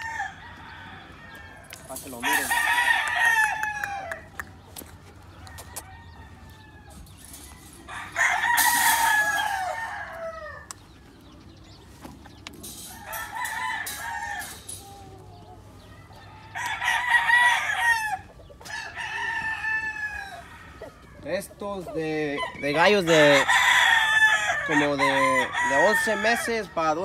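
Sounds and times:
rooster crowing: 0:00.0 - 0:04.3, 0:05.4 - 0:10.7, 0:12.8 - 0:15.3, 0:15.9 - 0:21.2, 0:22.9 - 0:26.4.

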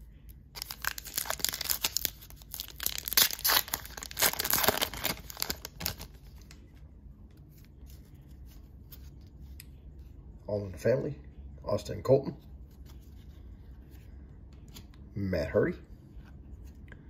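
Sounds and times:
wrapper tearing and crinkling: 0:00.6 - 0:06.2.

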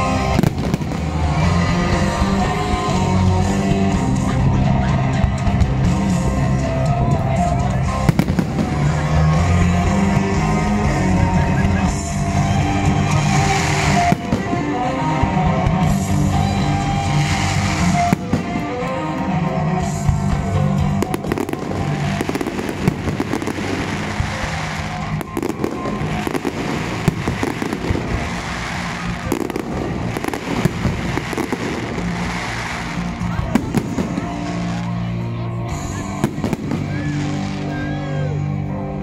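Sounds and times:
fireworks bangs: 0:00.0 - 0:03.0, 0:08.0 - 0:09.6, 0:12.6 - 0:19.4, 0:20.9 - 0:35.1, 0:35.8 - 0:37.9
fireworks crackling: 0:00.0 - 0:38.8
soundtrack music: 0:00.0 - 0:39.0.

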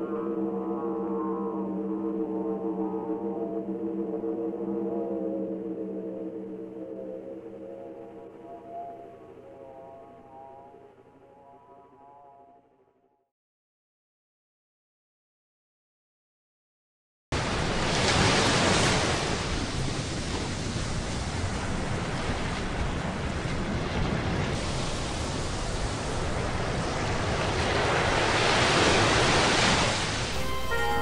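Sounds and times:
ocean surf washing on shore: 0:17.4 - 0:30.4.

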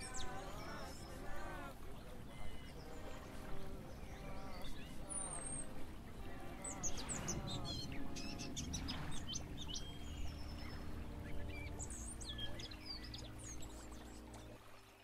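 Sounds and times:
reversed song with low chords: 0:07.1 - 0:14.5.

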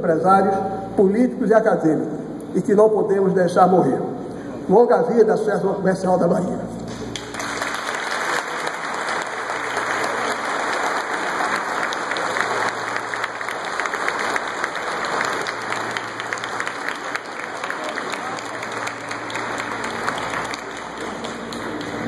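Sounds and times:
audience applauding: 0:07.1 - 0:22.0.

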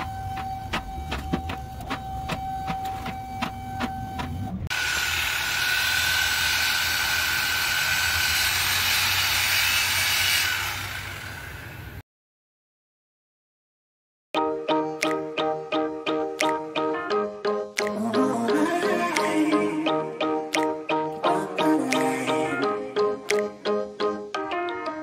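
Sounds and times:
reciprocating saw cutting steel pipe: 0:04.7 - 0:12.0.

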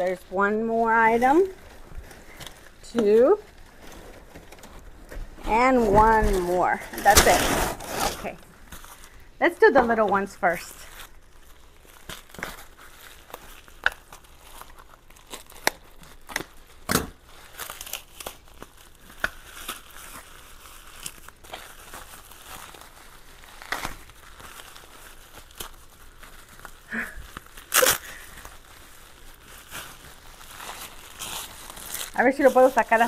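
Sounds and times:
plastic wrap crinkling and tearing: 0:00.0 - 0:33.0.

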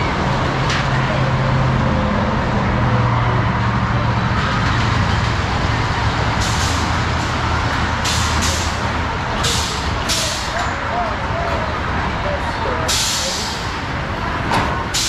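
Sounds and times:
roller coaster rumbling on track: 0:00.0 - 0:15.0.

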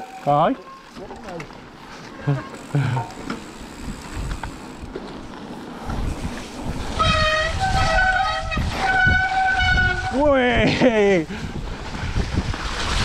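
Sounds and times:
disc brakes squealing: 0:00.0 - 0:01.2, 0:02.0 - 0:03.2
bike tyres rumbling over dirt: 0:00.0 - 0:13.0
wind on microphone: 0:05.8 - 0:13.0.

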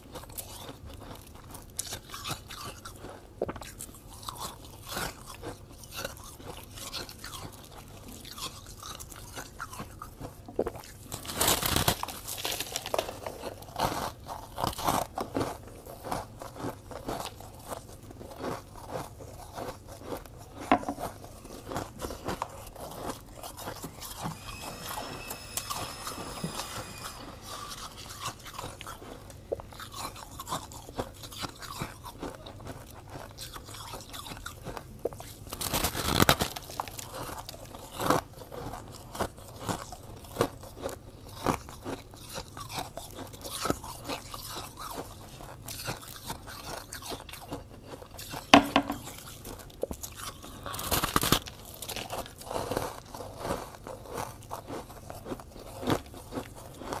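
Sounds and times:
chewing: 0:00.0 - 0:57.0
crunching frost: 0:18.4 - 0:32.4.

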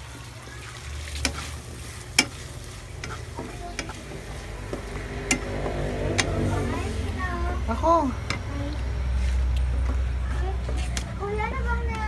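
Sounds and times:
meat sizzling: 0:00.0 - 0:09.5
spatula scraping wok: 0:00.7 - 0:09.6
spatula knocking against pan: 0:02.1 - 0:02.4.

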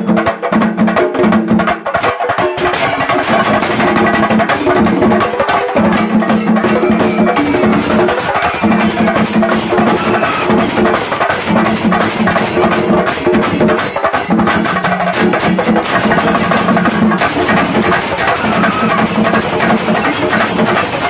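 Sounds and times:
drum ensemble beaten with sticks: 0:00.0 - 0:21.0.

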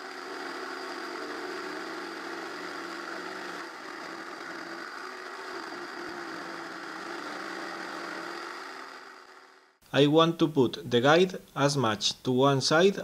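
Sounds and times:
jigsaw cutting plywood: 0:00.0 - 0:09.8.

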